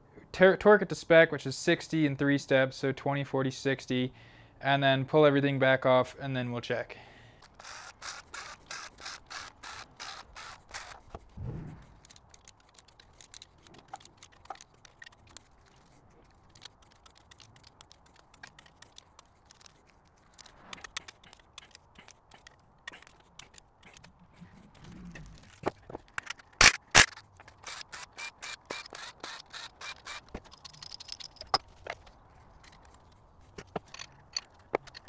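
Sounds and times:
ratchet clicking: 27.6s - 31.6s.

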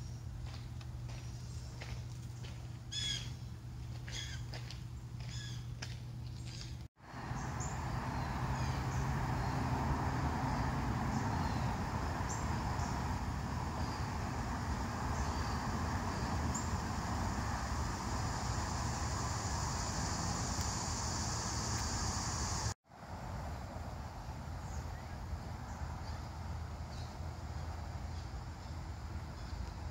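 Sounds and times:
distant road traffic rumble: 0.0s - 29.9s
steady high buzz: 7.1s - 22.8s.

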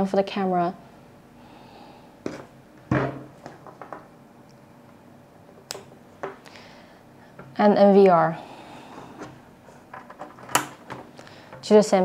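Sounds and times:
cables knocking on tabletop: 2.3s - 4.1s.

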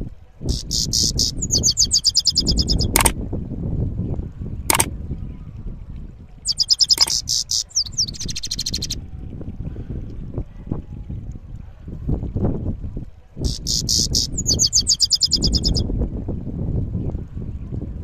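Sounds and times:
bird singing rolling trills: 0.5s - 3.0s, 6.4s - 9.0s, 13.4s - 15.8s
sharp clicks: 2.7s - 3.2s, 6.8s - 7.2s.

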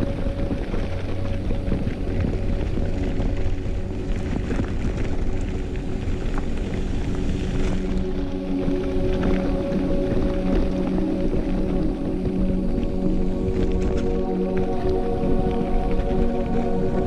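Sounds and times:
steady sustained tones: 0.0s - 17.0s
wind rushing on microphone: 0.0s - 17.0s
tyres crunching over gravel: 0.3s - 17.0s
bike rattling over bumps: 2.2s - 8.2s.

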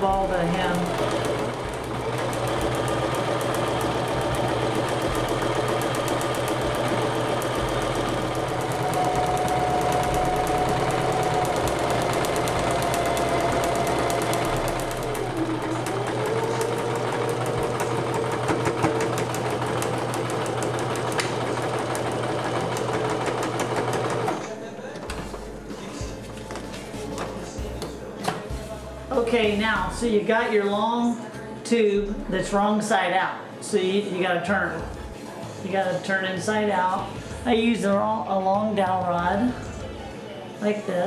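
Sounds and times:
electric sewing machine running: 0.0s - 24.5s.

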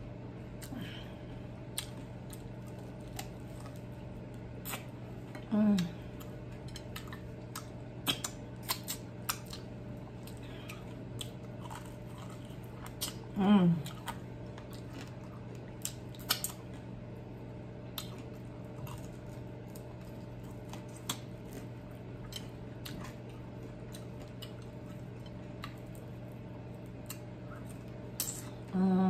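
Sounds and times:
steady low hum: 0.0s - 29.0s
wet chewing and licking: 6.1s - 16.9s.

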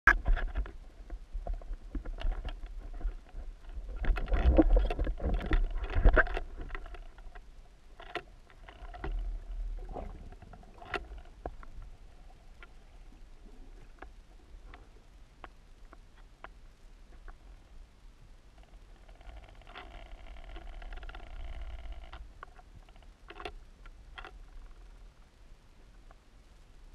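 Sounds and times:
sharp clicks and knocks: 0.1s - 11.8s
underwater rumble of moving water: 0.1s - 26.9s.

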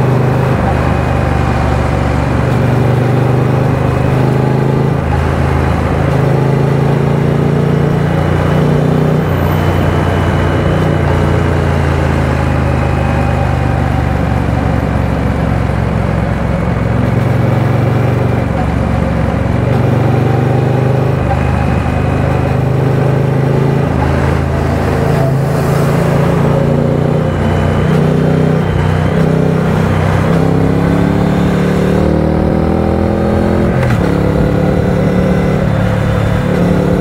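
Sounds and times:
motorcycle engine at speed: 0.0s - 37.0s
road and wind noise: 0.0s - 37.0s.

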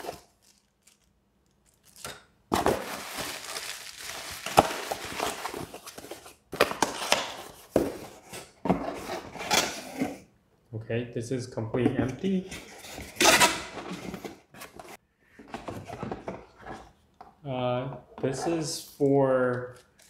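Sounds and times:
plastic bag crinkling: 0.0s - 2.2s, 2.8s - 5.6s.

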